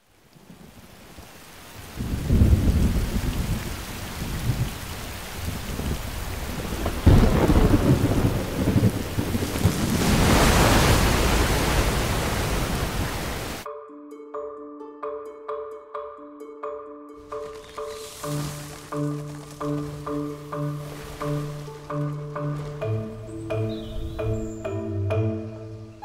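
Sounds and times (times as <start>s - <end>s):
heavy rain: 0.0s - 13.6s, 17.2s - 24.1s
rolling thunder: 1.8s - 13.6s
sharp thunderclap: 2.0s - 4.8s, 5.4s - 13.6s.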